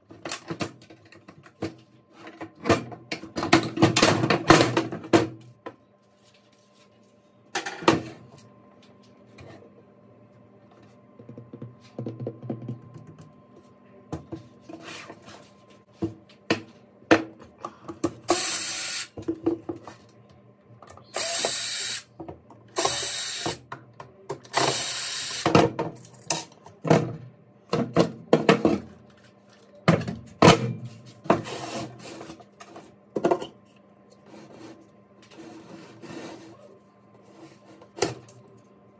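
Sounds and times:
cordless drill running: 18.3s - 19.1s, 21.1s - 22.1s, 22.8s - 23.6s, 24.6s - 25.4s.

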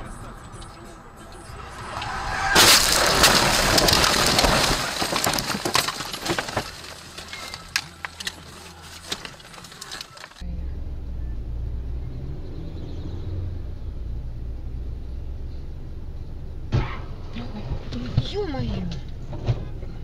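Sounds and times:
windshield cracking: 1.4s - 10.4s
car crashing into bushes: 1.5s - 10.4s
branches snapping and crackling: 1.6s - 10.4s.

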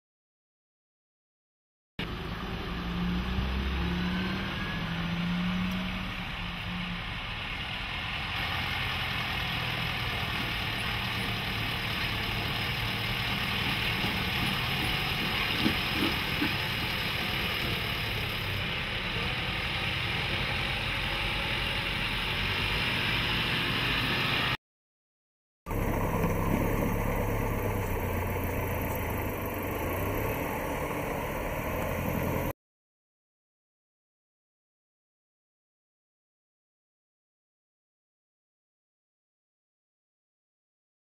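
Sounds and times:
diesel engine at low revs: 2.0s - 24.6s, 25.7s - 32.5s.

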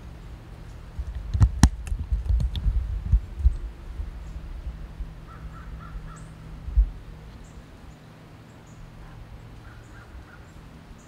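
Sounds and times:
low rumble: 0.0s - 7.9s
crows cawing: 5.3s - 6.4s, 9.0s - 10.6s.

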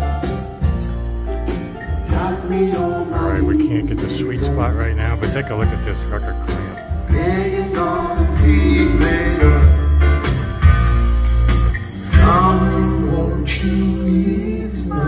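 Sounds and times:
song over loudspeakers: 2.0s - 10.5s.

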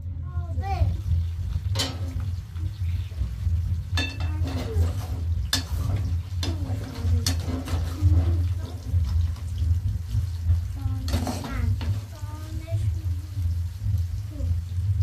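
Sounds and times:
food frying in a pot: 0.0s - 15.0s
low hum: 0.0s - 15.0s
utensil scraping and clinking pot: 3.9s - 9.4s, 11.0s - 12.1s.

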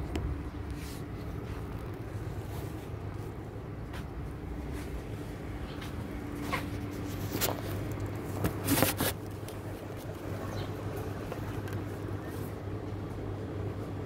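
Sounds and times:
low background hum: 0.0s - 14.0s.

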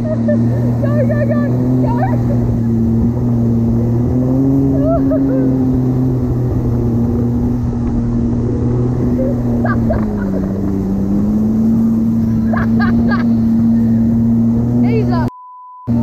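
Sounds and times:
jet ski engine running: 0.0s - 15.3s.

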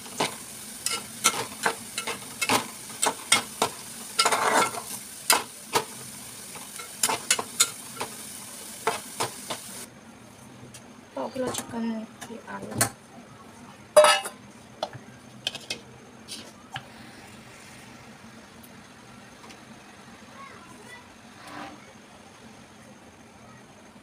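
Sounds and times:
onions sizzling in hot oil: 0.0s - 9.9s
metal spatula scraping pot: 4.2s - 4.9s.

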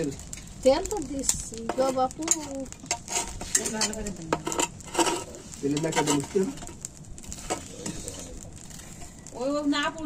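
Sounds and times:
sizzling: 0.0s - 10.0s
utensil scraping and clinking in pan: 1.2s - 9.2s.

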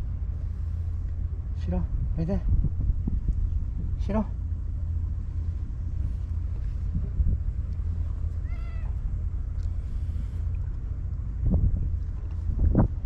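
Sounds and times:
cat meowing: 8.4s - 9.0s.

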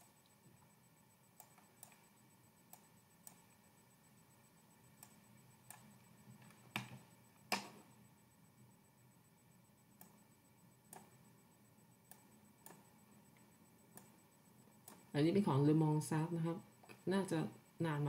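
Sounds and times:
computer mouse clicks: 1.4s - 2.1s, 2.7s - 3.5s, 5.0s - 7.8s, 10.0s - 10.2s, 10.9s - 11.2s, 12.0s - 14.2s, 14.8s - 15.1s.

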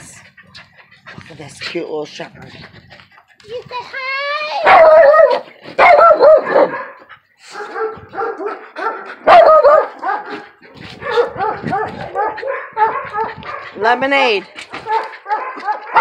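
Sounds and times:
dog yipping: 4.6s - 7.0s, 7.6s - 10.3s, 11.0s - 13.6s, 14.8s - 16.0s
dog barking: 4.6s - 10.4s, 11.0s - 13.8s, 14.8s - 16.0s.

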